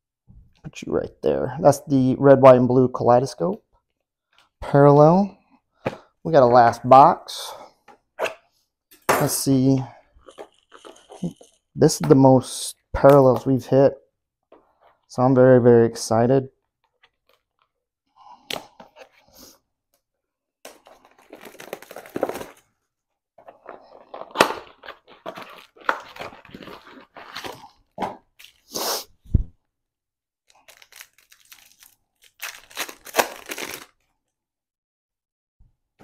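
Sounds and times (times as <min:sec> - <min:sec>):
foil packs crinkling: 0:20.7 - 0:22.7, 0:23.4 - 0:28.7, 0:30.5 - 0:34.1.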